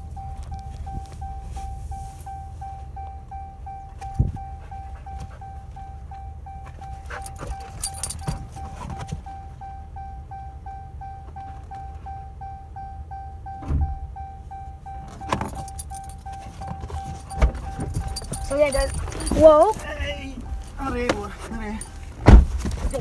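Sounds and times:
low rumble in cab: 0.0s - 23.0s
vehicle warning chime pinging: 0.0s - 23.0s
knocks and thumps of movement: 6.7s - 9.3s, 15.1s - 23.0s.

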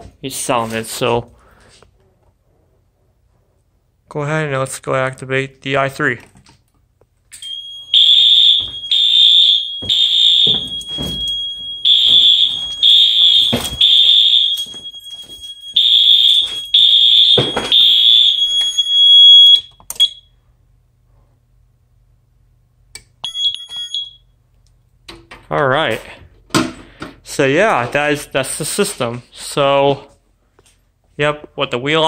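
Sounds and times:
fire alarm horn blasts: 7.4s - 20.3s, 23.2s - 24.3s
steady high-pitched beep: 23.2s - 24.2s.

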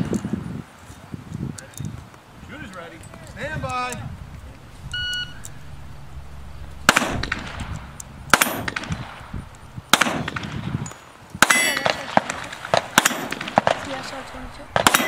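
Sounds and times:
shot timer beep: 4.8s - 5.8s.

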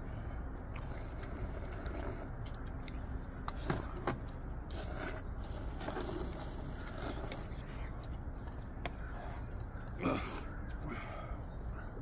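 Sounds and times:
people slurping noodles: 0.7s - 2.4s, 4.6s - 7.7s.

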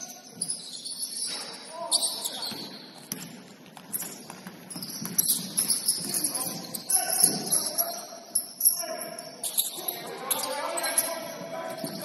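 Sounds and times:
sneaker squeaks: 0.0s - 12.0s
players' voices: 1.2s - 3.4s, 5.2s - 12.0s
basketball bouncing: 2.5s - 6.6s.

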